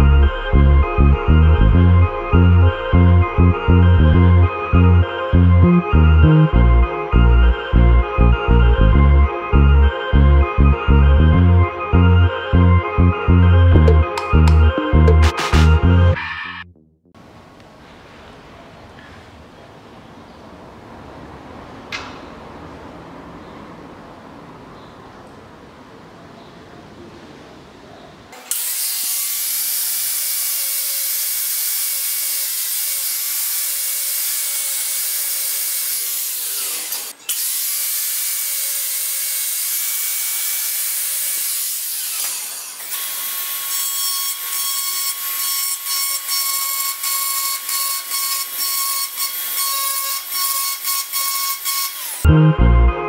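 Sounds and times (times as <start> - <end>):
angle grinder grinding metal: 28.4 - 52.3
rotary tool burr whining: 41.5 - 52.3.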